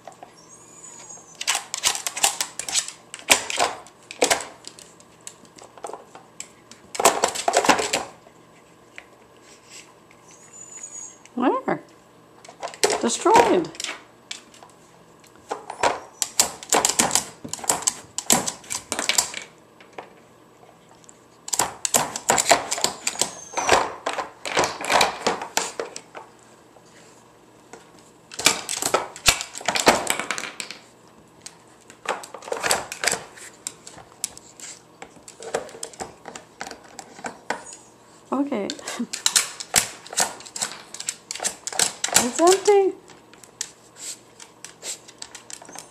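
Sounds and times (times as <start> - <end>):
plastic dog toy clattering: 39.1 - 42.8.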